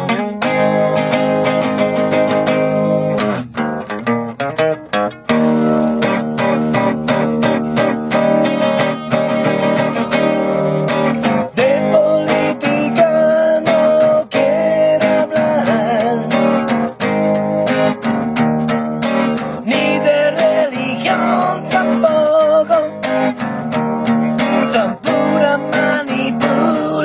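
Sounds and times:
acoustic guitar strumming: 0.0s - 27.0s
man singing: 11.2s - 17.0s, 19.2s - 23.5s, 24.3s - 27.0s.

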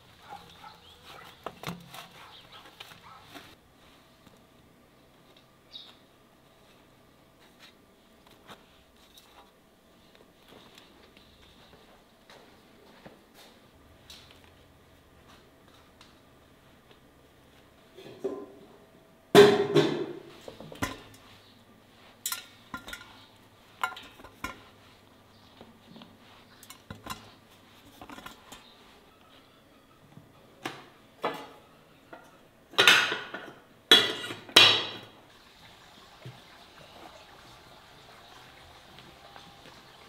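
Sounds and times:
dishes and cutlery clattering: 19.4s - 21.2s, 22.2s - 24.7s, 26.6s - 28.7s, 31.2s - 35.1s.

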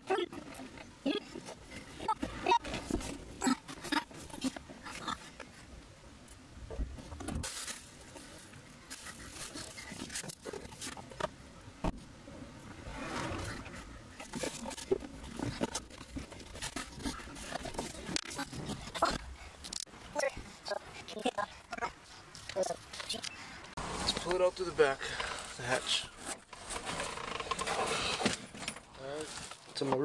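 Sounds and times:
rustling and scraping handling noise: 0.1s - 30.0s.

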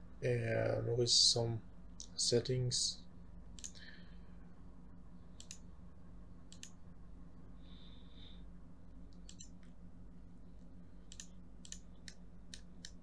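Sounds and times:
faint low electrical hum: 0.0s - 13.0s
computer mouse clicks: 3.6s - 3.8s, 5.4s - 5.7s, 6.5s - 6.8s, 9.1s - 9.8s, 11.1s - 13.0s.

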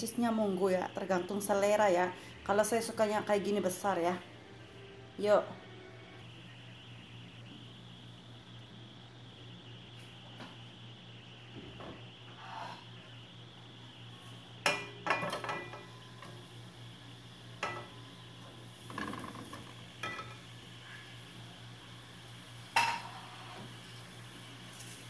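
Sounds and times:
faint oil sizzle: 6.2s - 25.0s.

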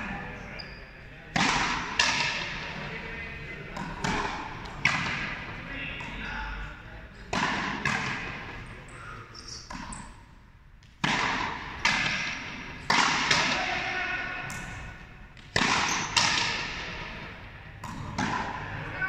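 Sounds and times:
rubber ball hitting racket and wall: 1.3s - 2.5s, 3.7s - 6.2s, 7.3s - 8.5s, 9.7s - 10.2s, 10.8s - 13.7s, 15.4s - 17.1s, 17.8s - 18.8s.

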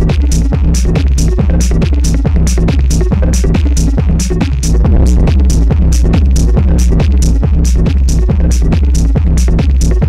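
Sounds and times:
heavy sustained bass line: 4.5s - 9.7s.

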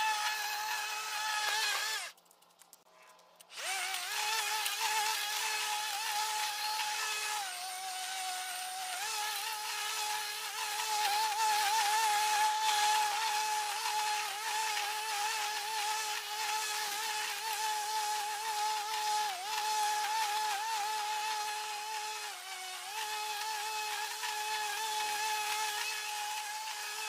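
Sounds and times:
electric lawn mower cutting grass: 0.0s - 2.2s, 3.4s - 27.0s.

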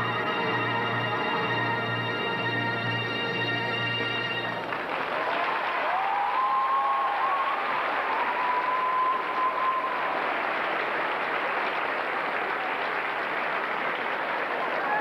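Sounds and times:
held musical note: 0.0s - 4.7s
audience applauding: 0.0s - 15.0s.

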